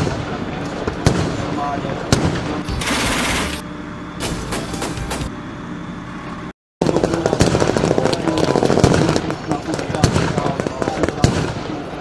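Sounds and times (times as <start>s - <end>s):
rapid gunfire: 2.1s - 3.6s, 6.8s - 11.8s.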